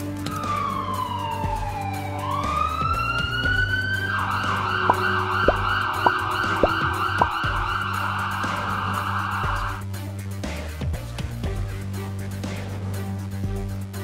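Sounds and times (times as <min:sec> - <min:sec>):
background music: 0:00.0 - 0:14.0
electronic ambulance siren: 0:00.3 - 0:09.8.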